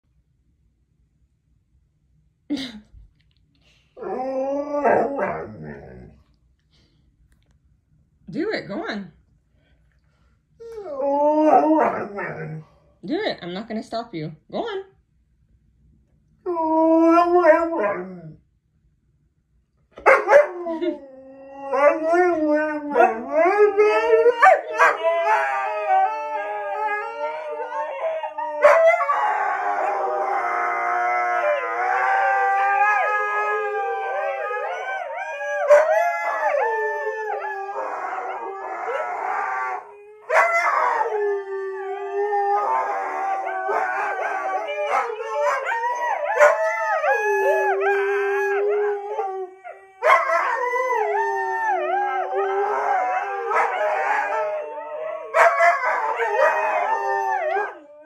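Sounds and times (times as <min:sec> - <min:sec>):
huskies howling: 0:04.0 - 0:06.1, 0:21.5 - 0:58.0.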